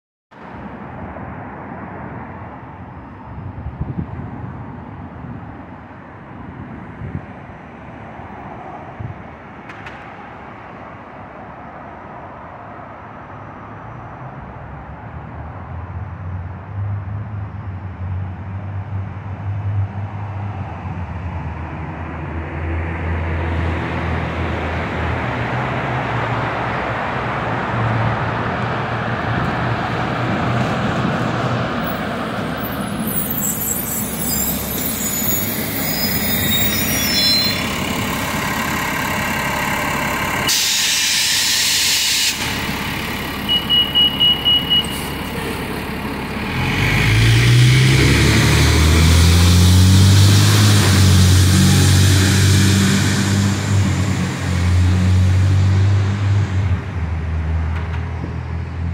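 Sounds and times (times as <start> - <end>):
road traffic passing: 0.3 - 58.9
vehicle engine low hum: 15.1 - 58.9.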